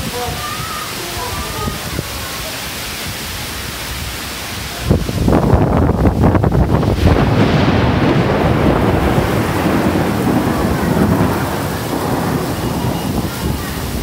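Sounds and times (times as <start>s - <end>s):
heavy rain: 0.0s - 14.0s
thunder rumbling: 4.8s - 14.0s.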